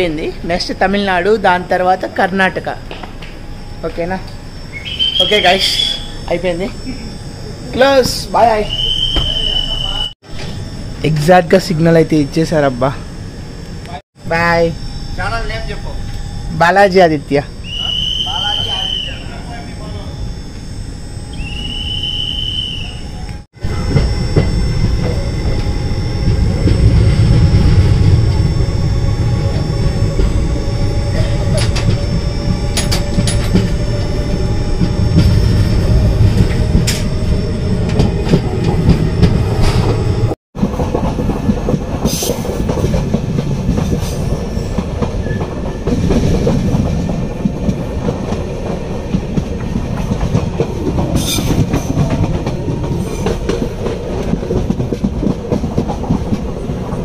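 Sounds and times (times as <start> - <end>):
train wheels rumbling on track: 21.4 - 57.0
wheels clicking over rail joints: 40.6 - 57.0.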